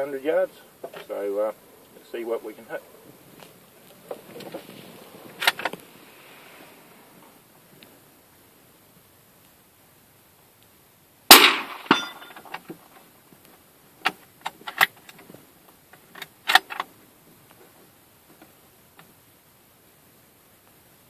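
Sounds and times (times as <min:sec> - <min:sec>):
suppressed rifle shot: 0:11.3 - 0:12.4.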